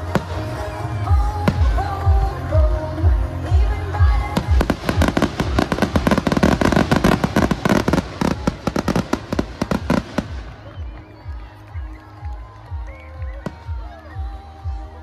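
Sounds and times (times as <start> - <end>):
music playing: 0.0 - 15.0
fireworks bangs: 4.4 - 11.0.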